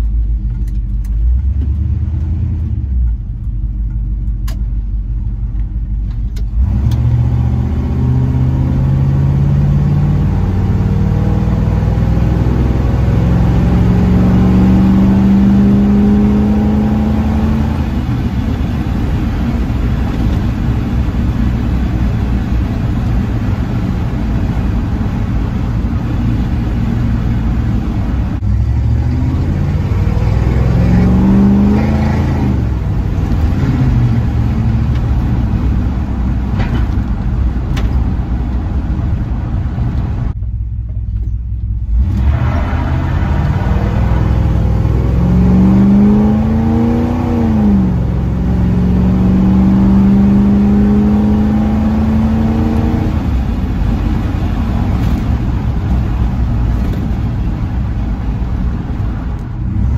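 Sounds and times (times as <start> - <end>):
car engine accelerating and shifting: 0.0 - 59.9.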